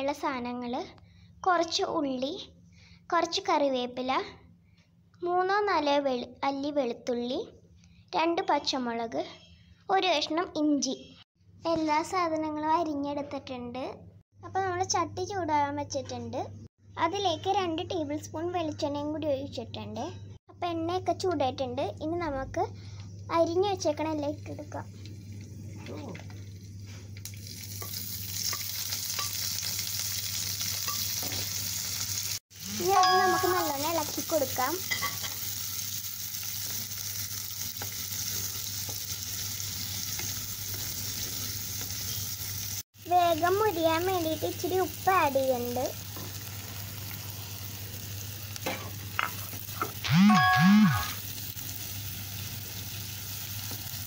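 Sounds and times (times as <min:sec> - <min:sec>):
food sizzling in hot oil: 0:23.8 - 0:54.0.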